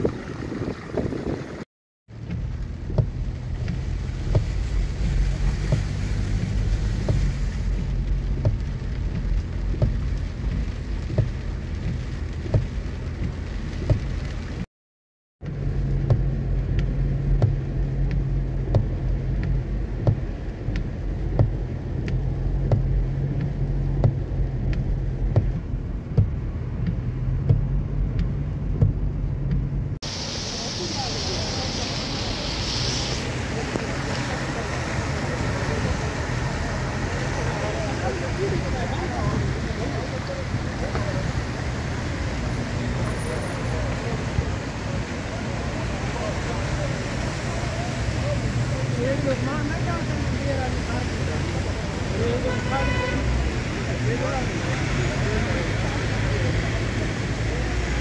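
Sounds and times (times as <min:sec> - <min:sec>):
car engine hum: 0:00.0 - 0:14.7, 0:15.4 - 0:58.0
raindrops ticking on car: 0:02.1 - 0:14.7, 0:15.4 - 0:58.0
tyre hiss on wet road: 0:03.2 - 0:14.7, 0:30.0 - 0:58.0.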